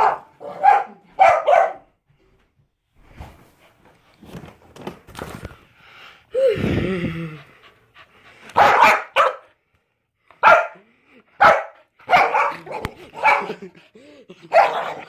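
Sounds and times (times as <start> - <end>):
dog barking: 0.0 - 1.9, 8.6 - 9.5, 10.4 - 13.6, 14.5 - 15.0.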